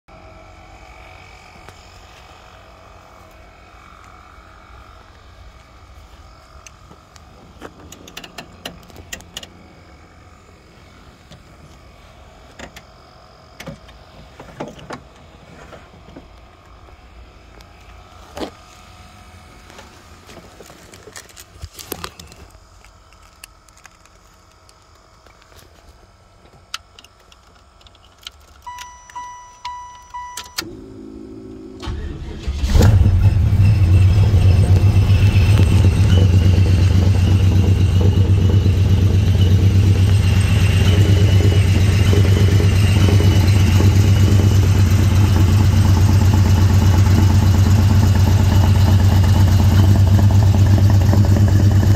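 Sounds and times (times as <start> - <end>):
car warning chime pulsing: 28.7 - 45.6.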